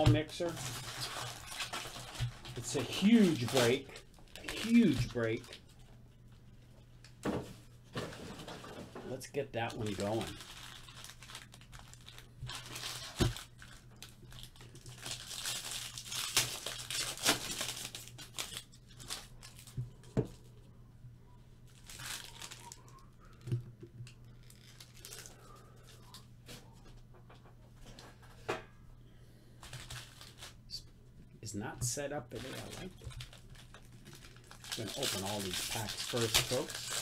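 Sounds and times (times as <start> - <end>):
foil wrappers tearing and crinkling: 0.0 - 5.6, 9.6 - 19.8, 21.7 - 22.9, 24.4 - 25.5, 29.6 - 30.6, 32.3 - 37.0.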